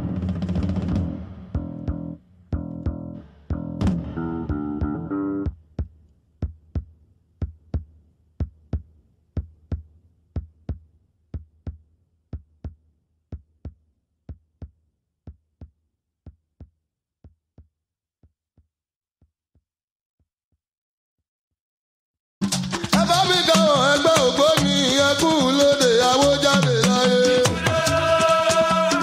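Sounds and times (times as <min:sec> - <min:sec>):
drum-machine beat: 0:00.0 - 0:17.8, 0:22.4 - 0:29.0.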